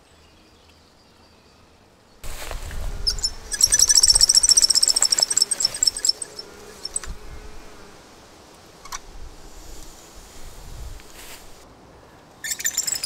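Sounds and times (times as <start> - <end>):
dry leaves rustling underfoot: 2.2 - 7.2, 9.6 - 11.6
wooden pulley squeaking: 3.0 - 7.1, 12.5 - 13.0.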